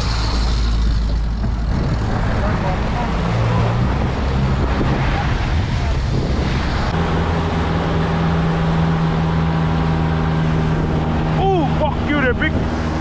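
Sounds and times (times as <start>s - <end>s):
wind on microphone: 0.0s - 11.5s, 12.3s - 13.0s
churning wake rushing: 0.0s - 13.0s
outboard motor running: 7.0s - 13.0s.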